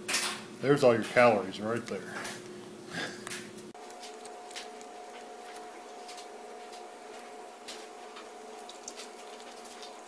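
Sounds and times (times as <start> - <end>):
faint hum: 0.4 - 10.0
sauce squishing: 3.8 - 10.0.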